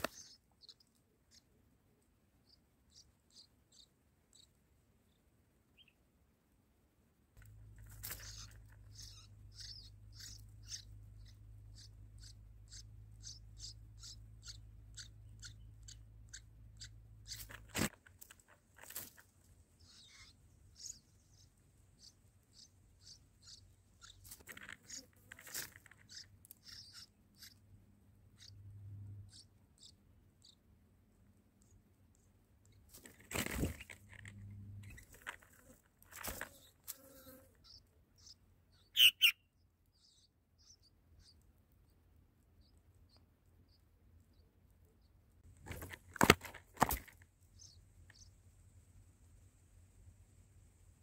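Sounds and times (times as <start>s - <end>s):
clicks and rustles of dry grass: 17.3s - 19.5s, 24.2s - 26.3s, 32.9s - 37.2s, 45.5s - 47.4s.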